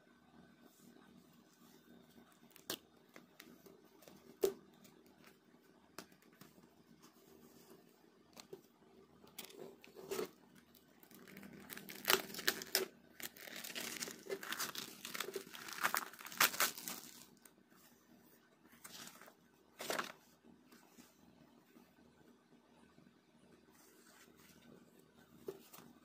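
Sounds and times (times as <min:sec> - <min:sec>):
packaging crinkling and tearing: 0:09.4 - 0:17.4.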